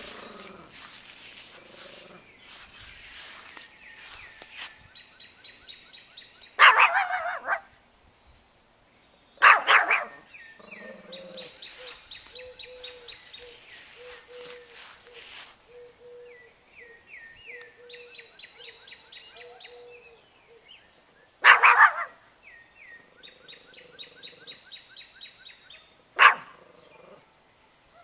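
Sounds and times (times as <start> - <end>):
birds chirping faintly: 0.0 - 28.0
small dog barking: 6.6 - 7.7, 9.4 - 10.3, 21.4 - 22.2, 26.2 - 26.6.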